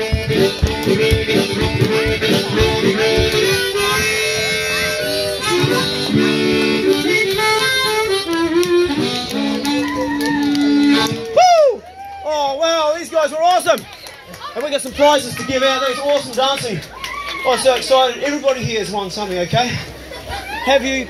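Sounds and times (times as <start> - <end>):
hands clapping: 0.0 - 3.6, 6.8 - 11.4, 15.7 - 18.0
harmonica playing: 0.0 - 11.4.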